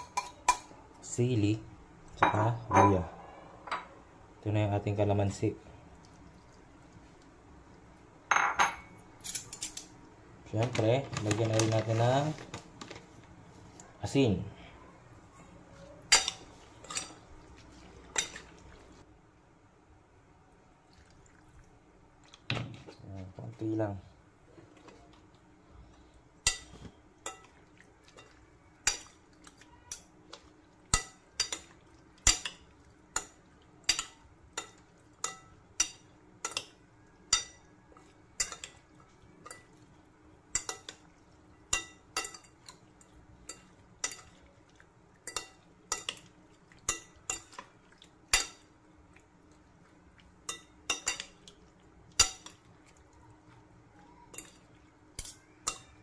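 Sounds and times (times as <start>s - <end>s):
cutlery clinking on ceramic bowl: 8.3s - 9.9s, 33.2s - 38.8s, 50.4s - 51.5s, 55.2s - 56.0s.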